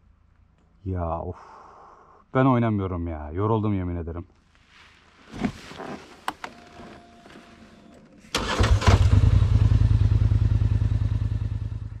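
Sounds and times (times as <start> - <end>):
atv engine starting and running: 6.7 - 12.0.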